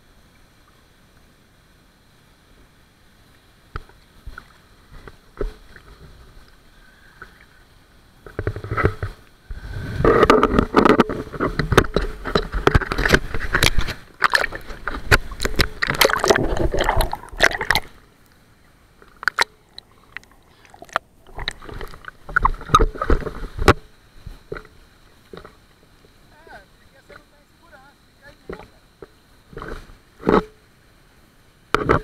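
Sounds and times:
water splashing against camera: 8.2s - 18.1s, 19.0s - 30.6s.

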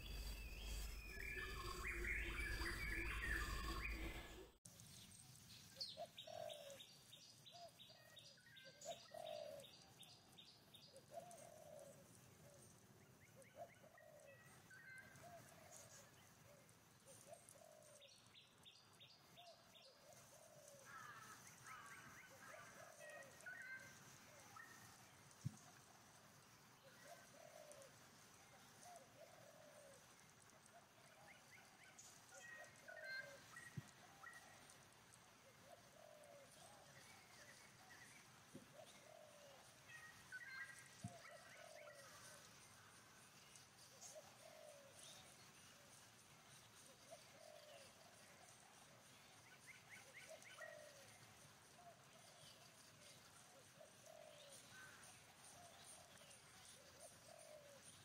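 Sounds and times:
faint forest hiss: 0.0s - 58.0s
bird cooing calls: 5.8s - 6.8s, 8.6s - 9.7s, 11.1s - 12.6s, 13.4s - 18.1s, 20.0s - 24.8s, 26.8s - 27.9s, 28.8s - 30.0s, 32.3s - 34.5s, 35.4s - 38.0s, 38.7s - 42.4s, 43.9s - 45.3s, 47.0s - 48.1s, 49.9s - 52.4s, 53.4s - 54.9s, 55.6s - 57.8s.

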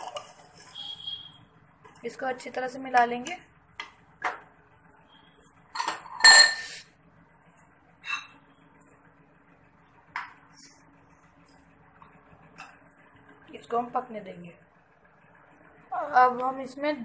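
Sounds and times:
spoon clinking against saucepan: 5.8s - 6.7s.

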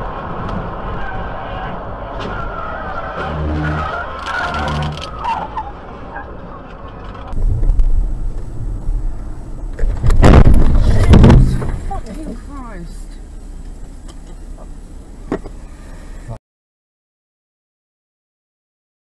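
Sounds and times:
brakes squealing: 0.0s - 16.4s
car engine rumble: 0.0s - 16.4s
road and tyre noise: 0.0s - 16.4s.

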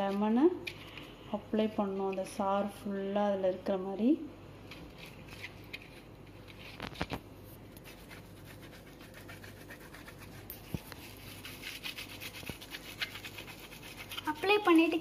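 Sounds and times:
lemon rubbing on mesh strainer: 7.8s - 15.0s.

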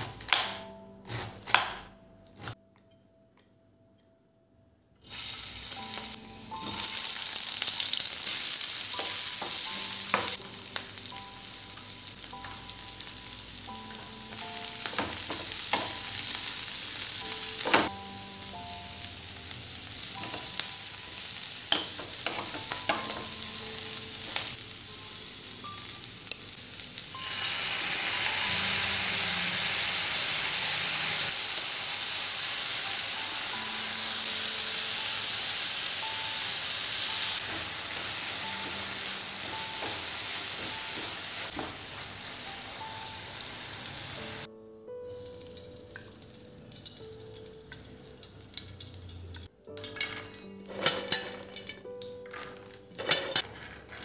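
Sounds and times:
vegetables sizzling in oil: 5.0s - 54.0s
wooden spatula stirring: 52.3s - 54.0s.

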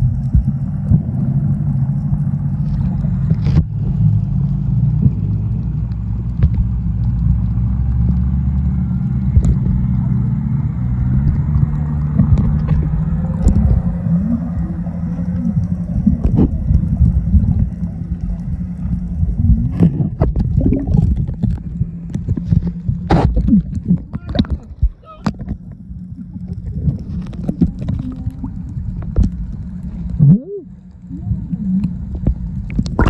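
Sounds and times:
boat engine hum underwater: 0.0s - 33.0s
water splashing: 11.2s - 33.0s.

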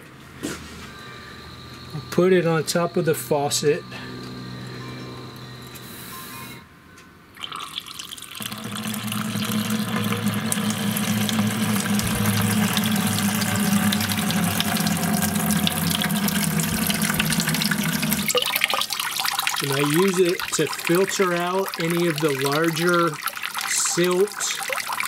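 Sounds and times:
water splashing into plastic bucket: 7.4s - 25.0s.

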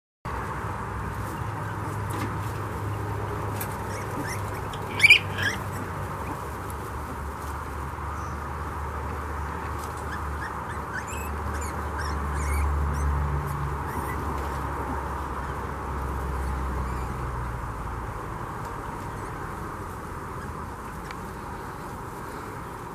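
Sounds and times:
piglet squeaks: 3.8s - 5.7s, 10.0s - 13.1s, 13.8s - 14.3s
loud piglet squeal: 3.9s - 5.7s, 10.1s - 13.2s, 13.8s - 14.3s.

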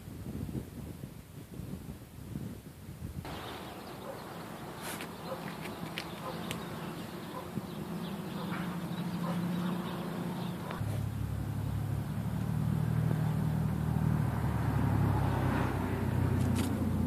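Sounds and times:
low hum of motor running: 3.3s - 14.0s.

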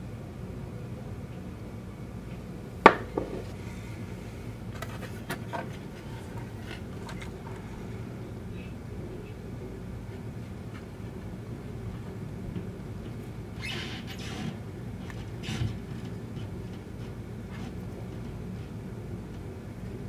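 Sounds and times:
steady low hum: 0.0s - 20.0s
plastic shell knocking: 2.9s - 3.5s.

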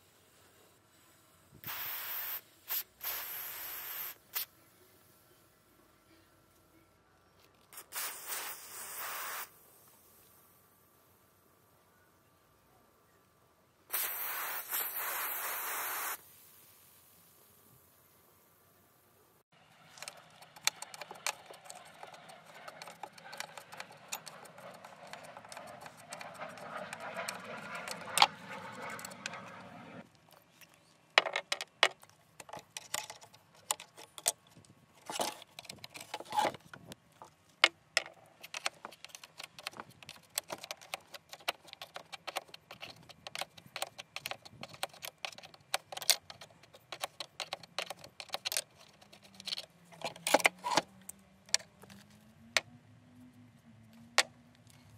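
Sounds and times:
spanner grating on rusty bolts: 19.9s - 30.0s.

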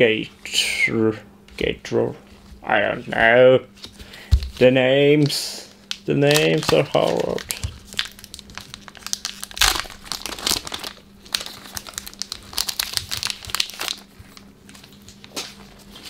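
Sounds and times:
foil wrapper crinkling and tearing: 5.2s - 16.0s.

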